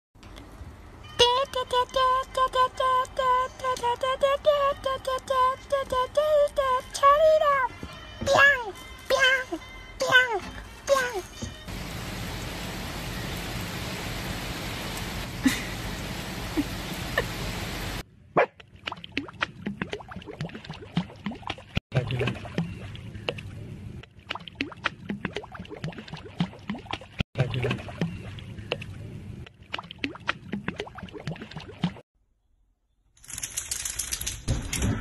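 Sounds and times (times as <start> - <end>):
water splashing and sloshing: 11.4 - 32.0.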